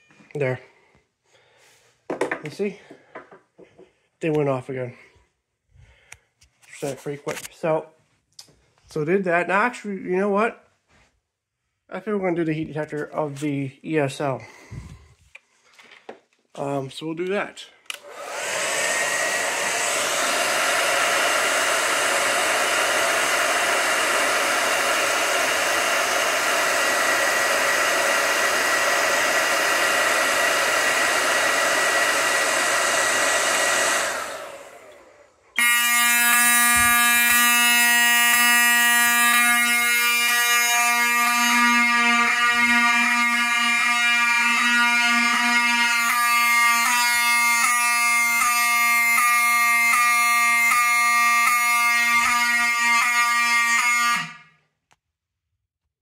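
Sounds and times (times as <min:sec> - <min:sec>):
hair dryer blowing: 0:17.9 - 0:54.3
fire alarm horns buzzing: 0:35.6 - 0:54.6.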